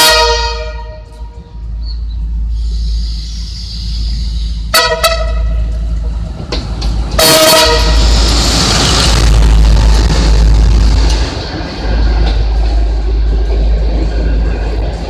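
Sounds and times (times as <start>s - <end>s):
locomotive air horn: 0.0s - 1.4s, 4.6s - 5.7s, 7.2s - 8.2s
train rumble and hiss: 0.0s - 15.0s.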